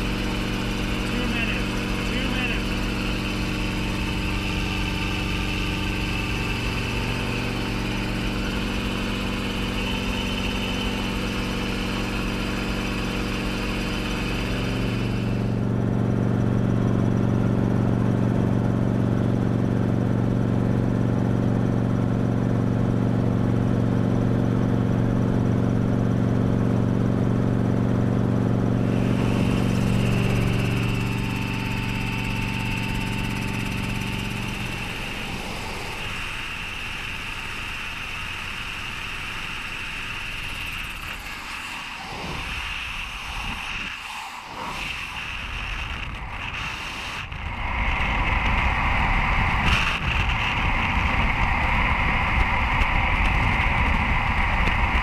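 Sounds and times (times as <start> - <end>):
helicopter engine and rotor: 0.0 - 55.0.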